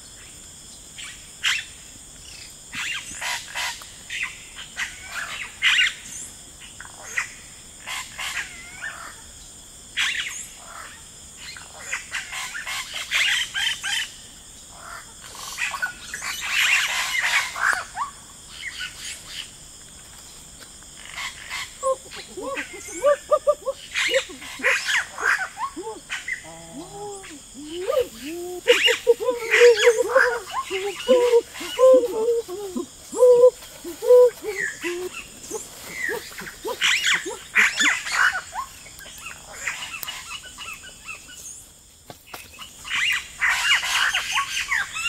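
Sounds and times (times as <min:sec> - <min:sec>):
high insect drone: 0:00.0 - 0:45.0
birds chirping: 0:21.2 - 0:41.3
rising-and-falling animal calls: 0:21.8 - 0:38.4.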